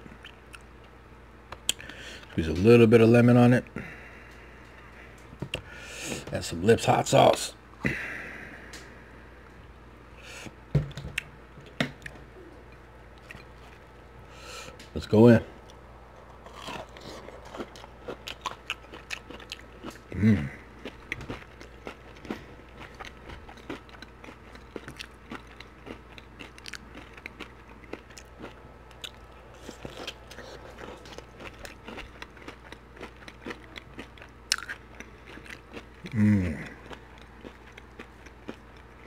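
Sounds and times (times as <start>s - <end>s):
chewing and crunching: 0.0s - 1.0s, 11.2s - 15.0s, 15.6s - 39.0s
person humming: 12.3s - 12.7s, 20.1s - 20.7s, 36.0s - 36.8s.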